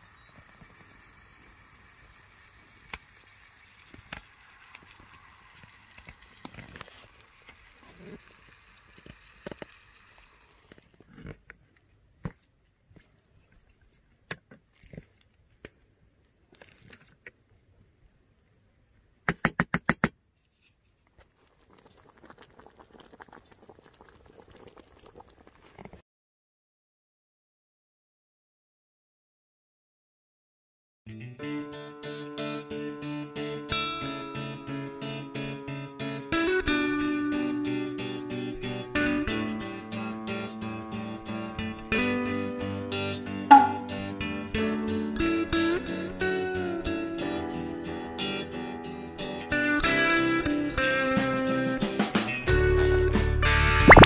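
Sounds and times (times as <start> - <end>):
sharp clicks and pops: 3.8 - 11.6, 19.2 - 20.2
sharp knocks: 43.5 - 44.0.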